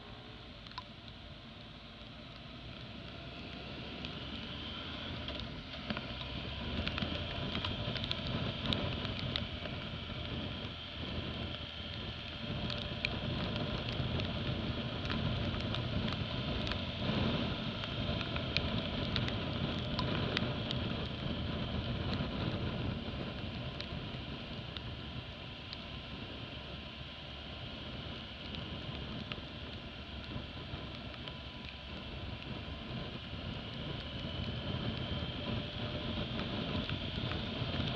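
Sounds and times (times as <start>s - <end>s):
motorcycle engine running: 0.0s - 37.9s
small ticks: 0.6s - 1.2s, 5.2s - 24.9s, 28.1s - 37.9s.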